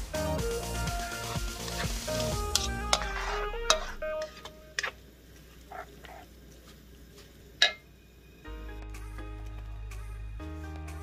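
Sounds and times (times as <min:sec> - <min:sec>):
background music: 0:00.0 - 0:04.7, 0:08.4 - 0:11.0
noodles stirred scraping: 0:01.2 - 0:05.0.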